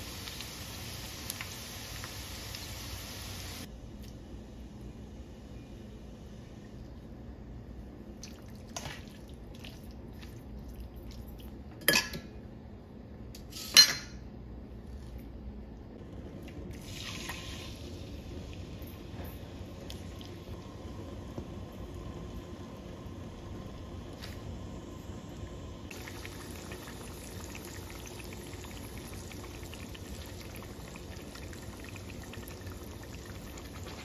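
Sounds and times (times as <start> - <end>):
chicken frying in hot oil: 0.0 - 3.7, 16.8 - 18.5, 25.9 - 34.0.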